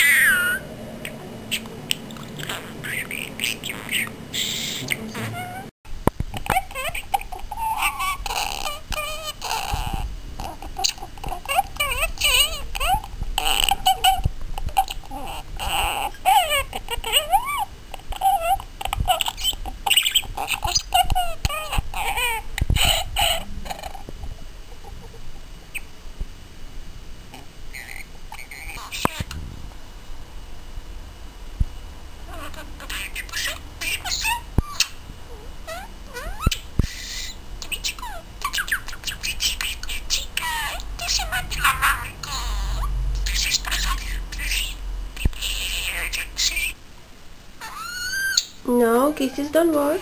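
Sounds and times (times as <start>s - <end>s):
budgerigar chattering: 0.0s - 5.6s, 6.5s - 24.0s, 27.7s - 29.4s, 32.3s - 35.0s, 35.7s - 46.8s.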